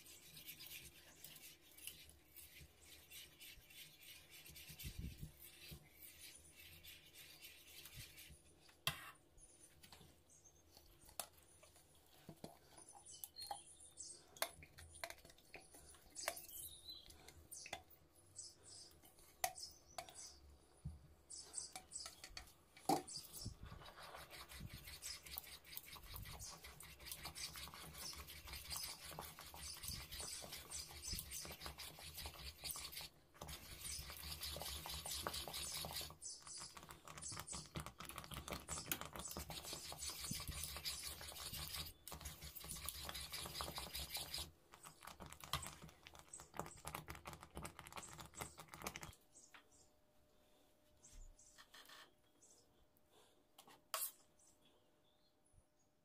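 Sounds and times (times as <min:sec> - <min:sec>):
whisk scraping metal pot: 0:22.9 - 0:48.6.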